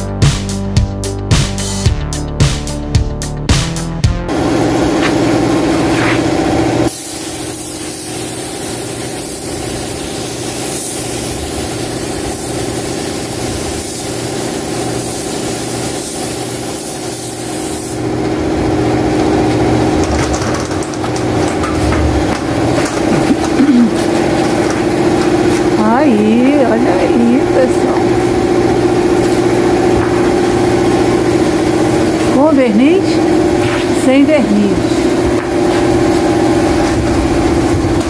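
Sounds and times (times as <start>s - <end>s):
paint spray gun hissing: 4.3s - 18.2s, 26.5s - 32.5s
air compressor hum: 4.3s - 38.0s.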